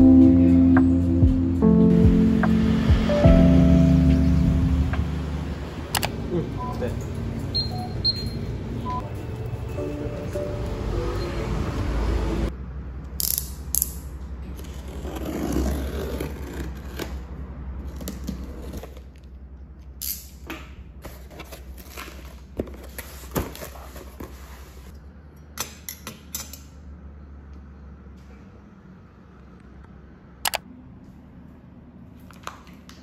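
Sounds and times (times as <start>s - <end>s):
low steady hum: 0.0s - 10.6s
street noise: 0.0s - 33.0s
cardboard rustling and scraping: 21.0s - 24.9s.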